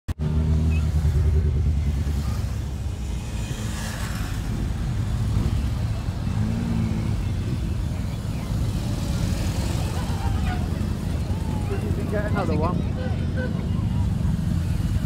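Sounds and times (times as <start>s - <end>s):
motorcycle engines passing: 0.2s - 15.0s.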